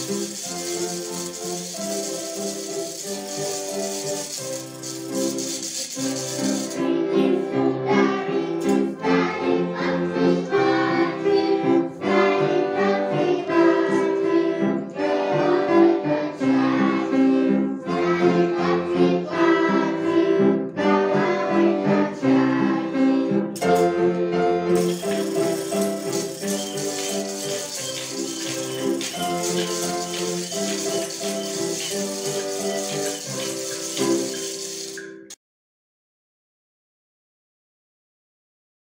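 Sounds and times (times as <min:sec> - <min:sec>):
hand rattles and bells shaking: 0:00.0 - 0:06.8, 0:24.8 - 0:35.0
children singing: 0:06.5 - 0:23.2, 0:24.8 - 0:34.4
accordion playing folk tune: 0:23.8 - 0:33.4.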